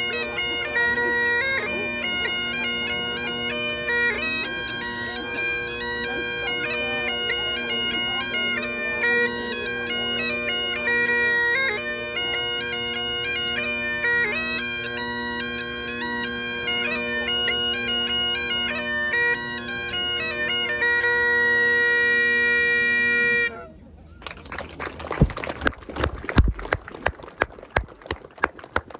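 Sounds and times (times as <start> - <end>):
bagpipes playing a tune: 0.0 - 23.6.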